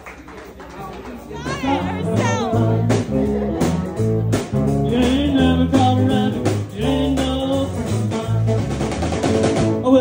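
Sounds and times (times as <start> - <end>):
guitar: 0.3 - 10.0
steady drum beat: 1.2 - 10.0
person singing: 1.4 - 8.7.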